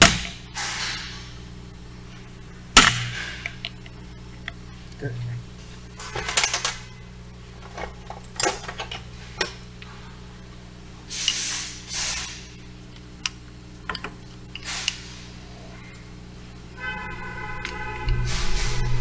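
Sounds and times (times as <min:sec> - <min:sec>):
low shop hum: 0:00.0 - 0:19.0
short hissy bursts: 0:11.1 - 0:12.6, 0:14.6 - 0:15.4.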